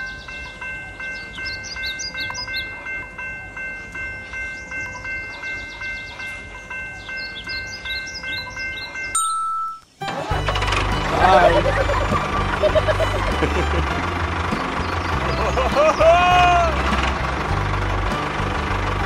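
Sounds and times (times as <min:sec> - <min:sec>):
level-crossing warning bell ringing: 0:00.0 - 0:09.9
high chirps: 0:03.6 - 0:10.0.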